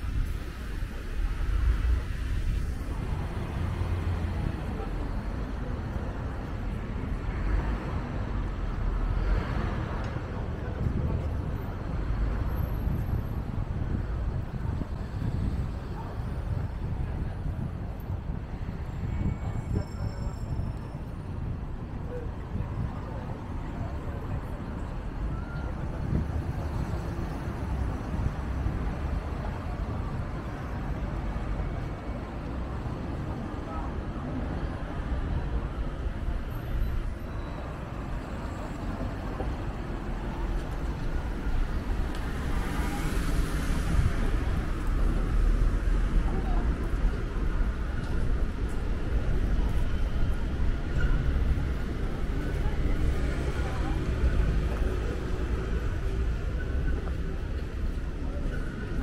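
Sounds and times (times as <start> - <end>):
traffic rumble: 0.0 - 59.0
wind on microphone: 10.3 - 31.9.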